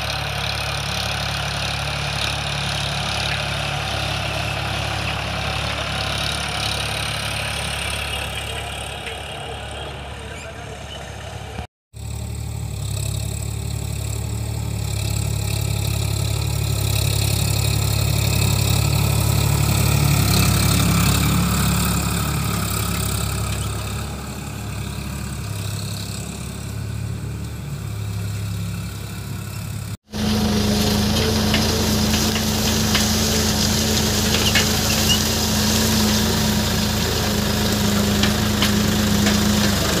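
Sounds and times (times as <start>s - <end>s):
tractor diesel engine running: 0.0s - 40.0s
soil crackling under tines: 30.1s - 40.0s.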